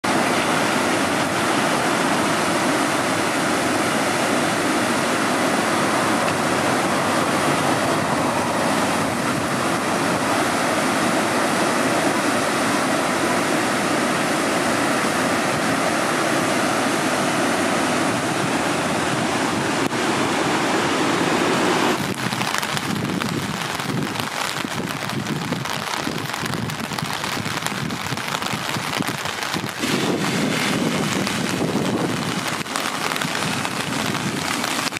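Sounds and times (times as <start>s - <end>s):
river rushing: 0.0s - 34.9s
wind on microphone: 5.7s - 11.1s, 21.8s - 34.9s.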